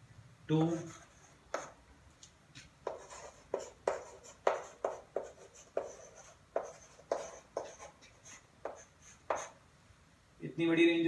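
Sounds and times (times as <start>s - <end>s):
chalk tapping and scraping: 0.5s - 1.8s, 2.6s - 9.6s.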